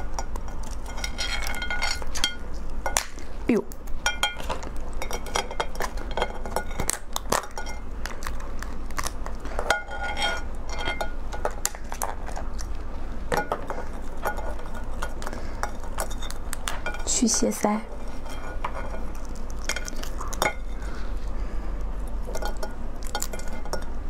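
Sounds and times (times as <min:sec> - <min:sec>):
crab shell cracking: 0:00.0 - 0:17.0, 0:18.6 - 0:20.9
steady low hum: 0:00.0 - 0:24.0.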